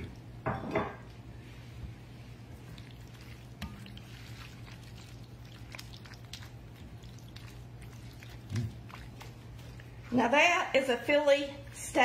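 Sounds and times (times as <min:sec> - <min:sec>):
spoon stirring saucy food: 0:02.4 - 0:10.2.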